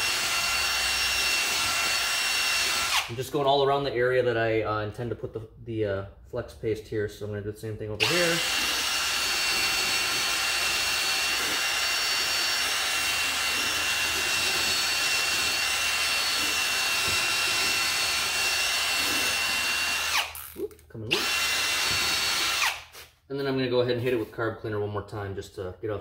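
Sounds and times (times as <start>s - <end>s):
power drill whining: 0.0s - 3.2s, 8.0s - 23.0s
wire brush scrubbing rubber: 8.0s - 20.0s.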